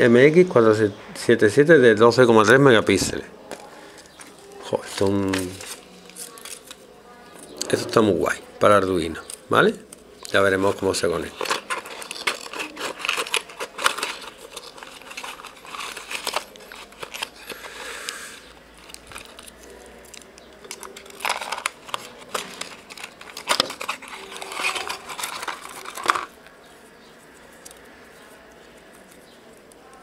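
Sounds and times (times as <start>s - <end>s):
cardboard packaging rustling: 2.8s - 6.9s, 10.2s - 30.0s.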